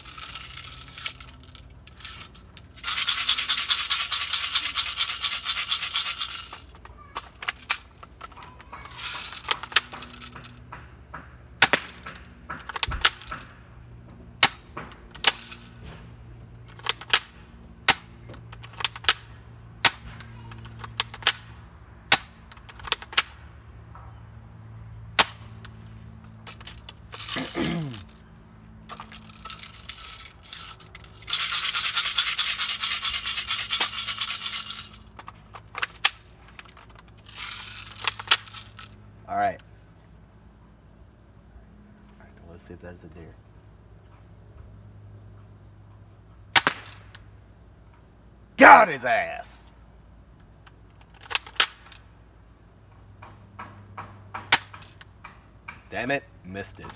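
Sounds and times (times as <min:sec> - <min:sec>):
airsoft gun shots: 0:46.6 - 0:46.9.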